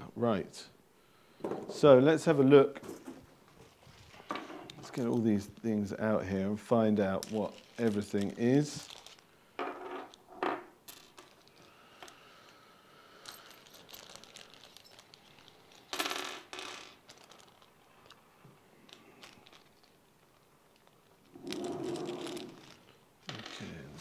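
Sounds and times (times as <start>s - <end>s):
small metal hardware clinking: 13.2s - 16.0s.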